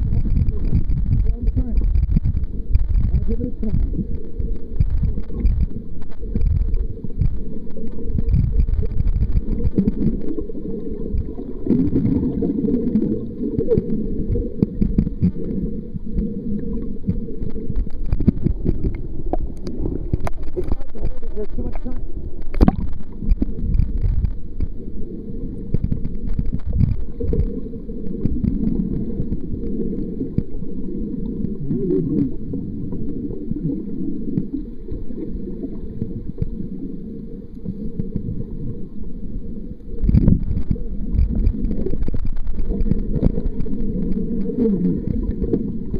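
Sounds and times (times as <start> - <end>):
water sloshing underwater: 0.0 - 45.9.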